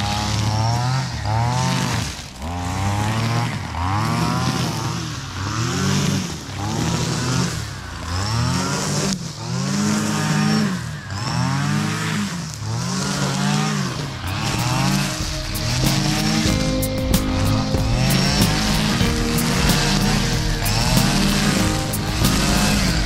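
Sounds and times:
brush cutter engine revving: 0:00.0 - 0:23.0.

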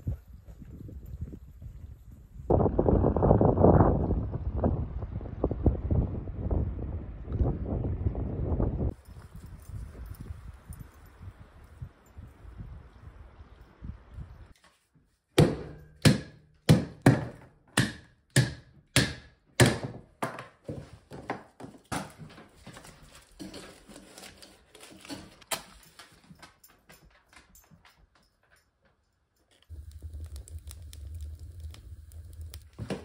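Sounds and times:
fire rumbling in woodstove: 0:29.6 - 0:33.0.

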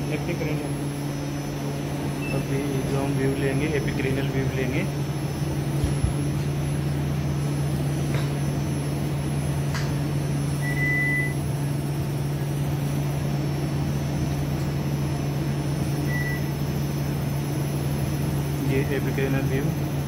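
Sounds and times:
electrical equipment hum: 0:00.0 - 0:20.0
short high electronic beep: 0:10.6 - 0:11.4.

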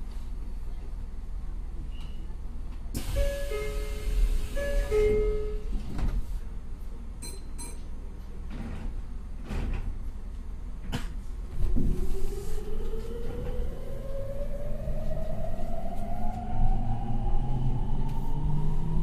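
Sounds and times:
train doors shutting: 0:02.9 - 0:06.4, 0:10.9 - 0:19.0
train motor whine rising: 0:11.8 - 0:19.0.

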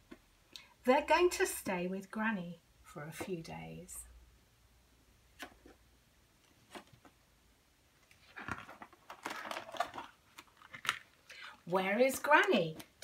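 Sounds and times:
paper page turning: 0:08.1 - 0:11.2.

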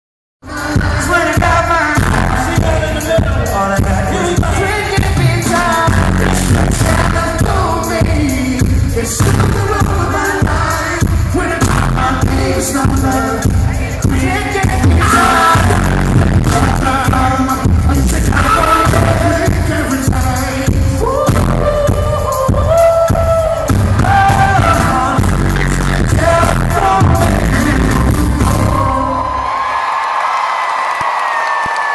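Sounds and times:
live band with heavy bass: 0:00.4 - 0:29.4
vocal group singing: 0:00.4 - 0:29.5
crowd cheering: 0:26.5 - 0:31.9.

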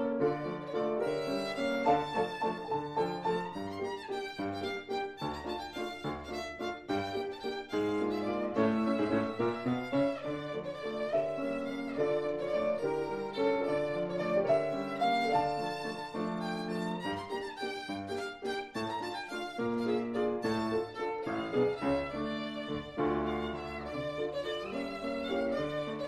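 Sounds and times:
instrumental accompaniment: 0:00.0 - 0:26.0
violin melody: 0:00.0 - 0:26.0.

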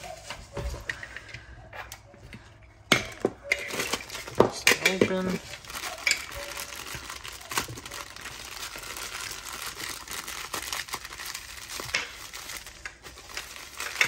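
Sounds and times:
plastic bag crinkling: 0:03.4 - 0:14.0.

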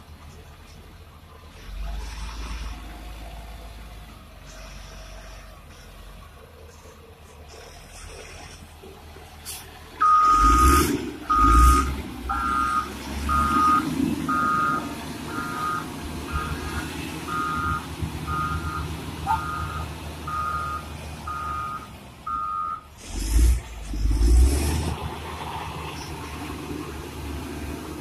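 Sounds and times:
diesel engine rumble: 0:00.0 - 0:28.0
reverse alarm beeping: 0:10.0 - 0:22.9.

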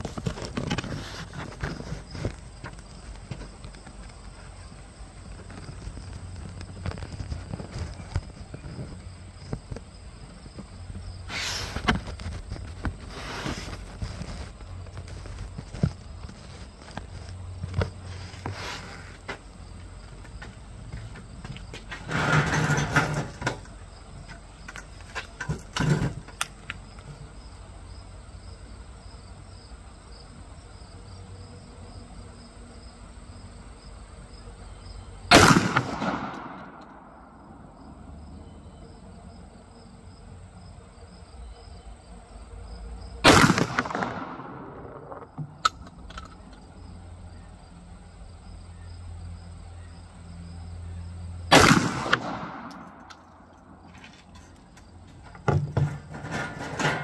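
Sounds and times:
insects buzzing: 0:00.0 - 0:57.0
shotgun shots with echo: 0:35.3 - 0:37.1, 0:43.2 - 0:44.9, 0:51.5 - 0:53.0.

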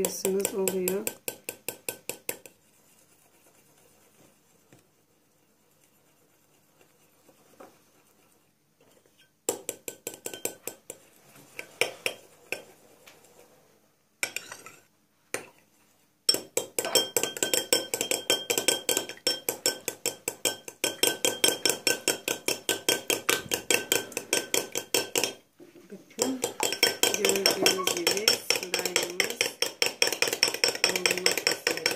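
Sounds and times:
fork clinking in glass bowl: 0:16.3 - 0:25.4, 0:26.2 - 0:31.9.

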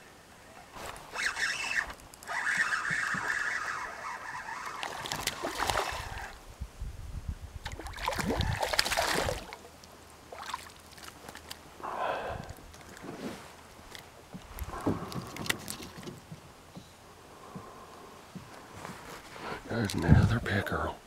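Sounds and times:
fishing line reeled in: 0:00.7 - 0:06.4
fish splashing and thrashing: 0:00.8 - 0:06.4, 0:07.6 - 0:11.7, 0:13.9 - 0:16.3.

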